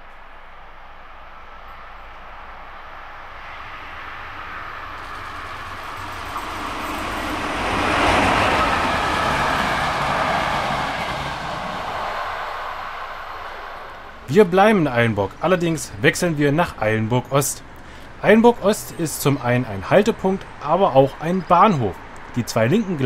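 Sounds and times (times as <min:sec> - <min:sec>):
train wheels on rails: 0:00.0 - 0:23.0.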